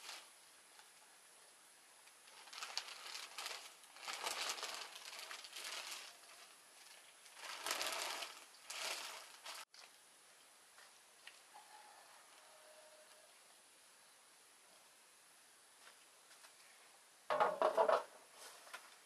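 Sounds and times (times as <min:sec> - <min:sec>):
plastic sheeting crinkling: 0:00.0 - 0:01.0, 0:02.1 - 0:09.9.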